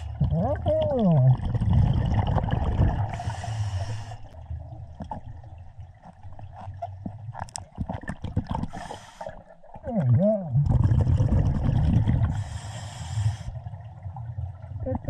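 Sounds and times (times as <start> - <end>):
low rumble of moving water: 0.0 - 15.0
scuba regulator breath hiss: 3.1 - 4.3, 8.7 - 9.4, 12.3 - 13.6.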